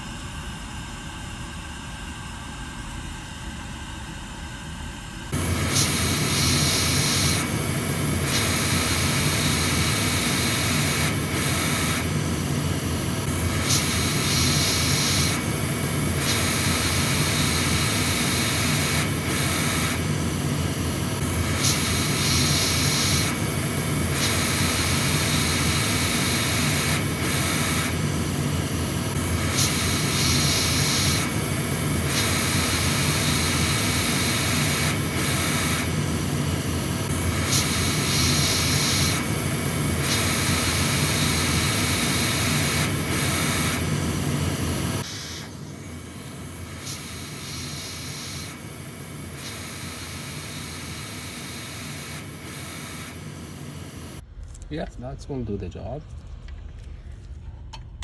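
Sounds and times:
hot air blower rushing: 0:05.3 - 0:54.2.

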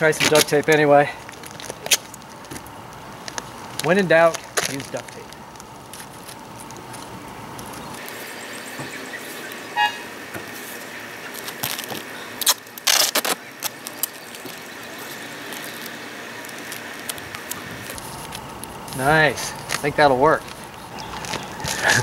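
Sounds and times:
duct tape crinkling and tapping: 0:00.0 - 0:09.6, 0:10.2 - 0:22.0
tape tearing off roll: 0:10.5 - 0:19.0.

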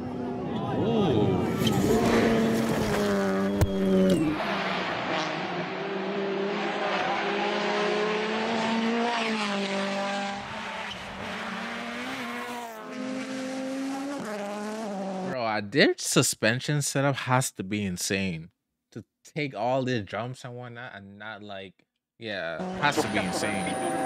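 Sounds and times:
rally car engines revving: 0:00.0 - 0:15.4, 0:22.5 - 0:24.0.

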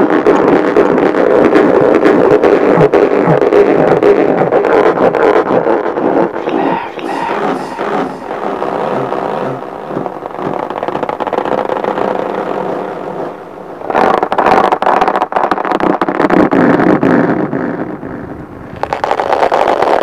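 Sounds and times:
fingertips rubbing a balloon: 0:01.4 - 0:17.8, 0:18.8 - 0:20.0.

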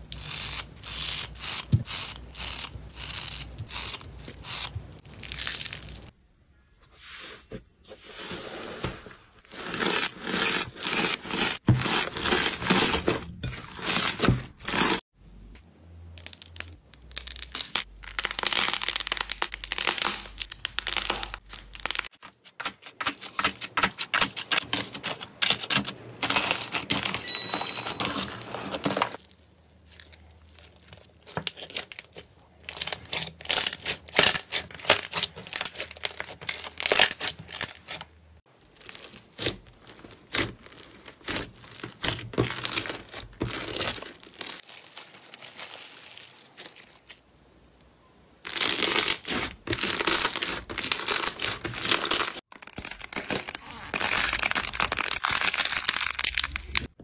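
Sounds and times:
slime crackling and popping: 0:16.1 - 0:22.2, 0:48.5 - 0:56.9.

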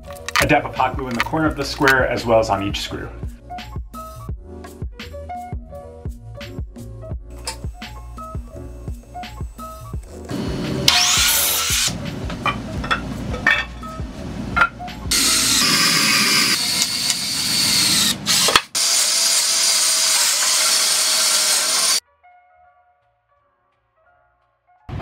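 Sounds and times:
miter saw cutting wood: 0:07.4 - 0:12.0, 0:15.1 - 0:22.0
cordless drill driving screws: 0:15.1 - 0:22.0.

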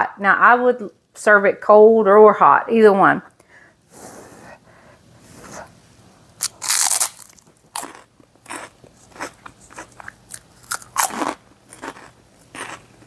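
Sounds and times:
crunching pork rind: 0:06.4 - 0:13.0.

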